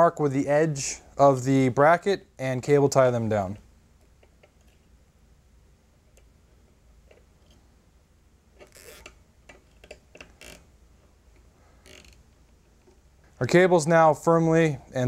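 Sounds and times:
cable ties ratcheting clicks: 8.6 - 10.7, 11.3 - 13.0.

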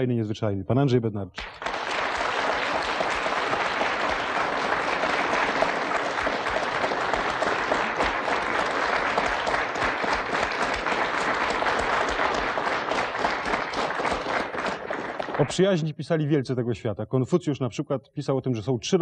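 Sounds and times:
audience applauding: 1.4 - 15.9.

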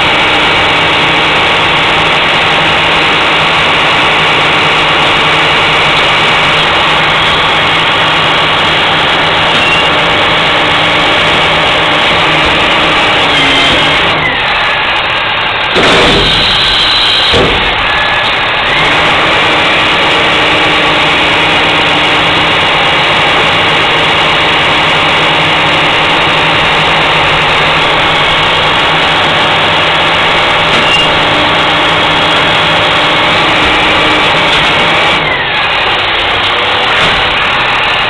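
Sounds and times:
garbage truck engine running: 0.0 - 38.0.

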